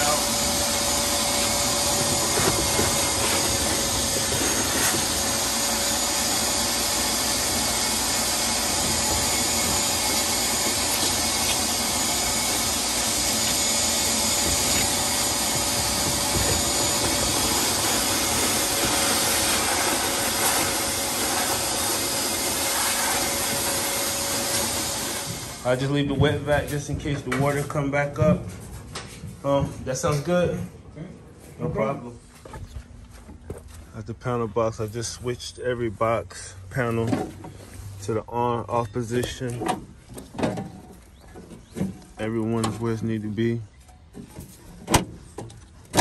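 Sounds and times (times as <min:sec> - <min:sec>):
hose sucking water: 0:00.0 - 0:25.7
shop vacuum motor whine: 0:00.0 - 0:26.3.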